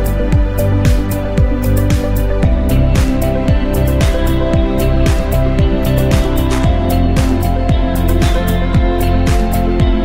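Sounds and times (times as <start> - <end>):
deep drum beat: 0.0 - 10.0.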